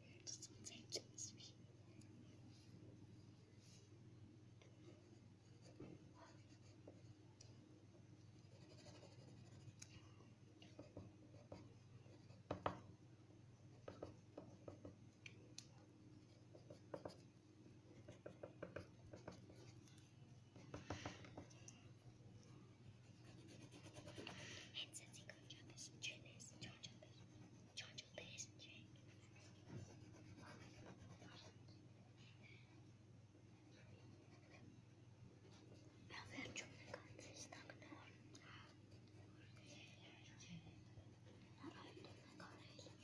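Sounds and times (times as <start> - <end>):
faint low hum: 0.0 - 43.0
pencil scratching on paper: 4.9 - 7.1, 8.4 - 9.8, 16.2 - 17.4, 23.0 - 24.4, 29.1 - 31.5, 33.8 - 34.7, 41.6 - 43.0.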